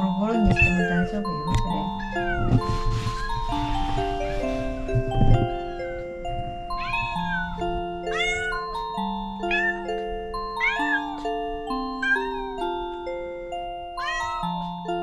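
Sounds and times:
chiming background music: 0:00.0 - 0:15.0
cat meowing: 0:00.5 - 0:01.1, 0:02.0 - 0:03.4, 0:06.7 - 0:08.8, 0:09.5 - 0:10.0, 0:10.6 - 0:11.2, 0:12.0 - 0:12.6, 0:14.0 - 0:14.5.

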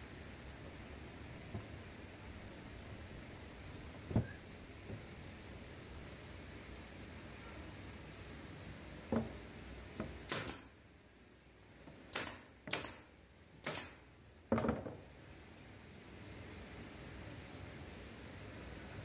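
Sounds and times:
pneumatic nail gun firing: 0:10.2 - 0:10.8, 0:12.1 - 0:14.0.

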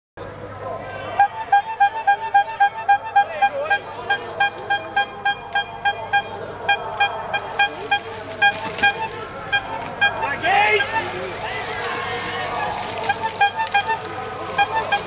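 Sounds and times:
horn tooting short beeps: 0:01.2 - 0:11.0, 0:13.0 - 0:15.0.

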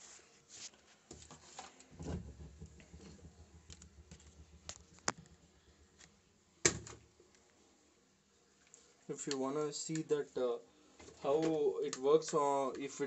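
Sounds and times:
loud knock: 0:02.0 - 0:06.0.

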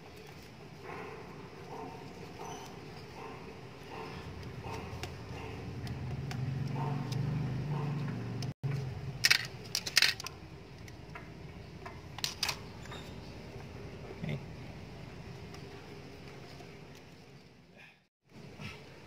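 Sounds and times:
tape clicking and rattling: 0:08.4 - 0:11.2, 0:11.8 - 0:12.6.

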